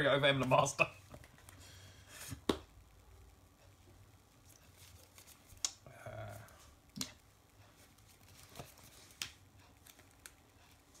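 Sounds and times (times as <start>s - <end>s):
cards clicking and tapping: 8.4s - 10.4s.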